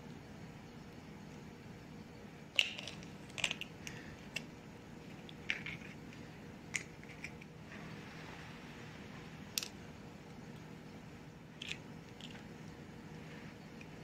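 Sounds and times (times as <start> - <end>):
eggshells cracking and clicking: 2.6 - 4.5, 11.6 - 12.5.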